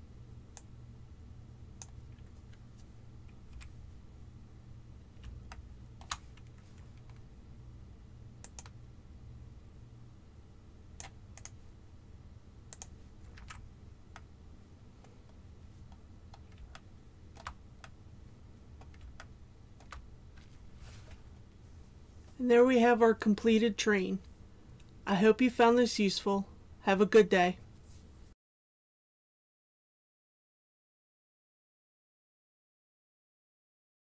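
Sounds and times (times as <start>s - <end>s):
low steady hum: 0.0s - 28.4s
mouse and keyboard clicks: 8.4s - 8.8s, 18.8s - 20.0s.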